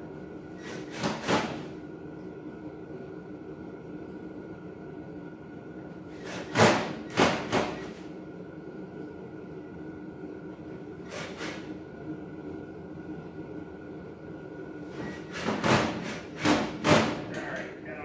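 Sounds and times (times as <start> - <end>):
steady hum: 0.0 - 1.0, 1.6 - 18.0.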